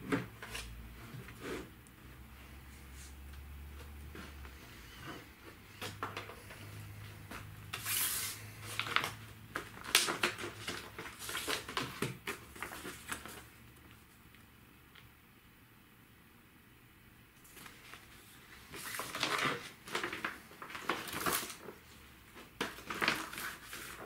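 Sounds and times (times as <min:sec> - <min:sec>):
paper rustling: 0:03.0 - 0:13.6, 0:17.4 - 0:24.0
plastic folder clicks and knocks: 0:08.8 - 0:13.3, 0:22.4 - 0:23.4.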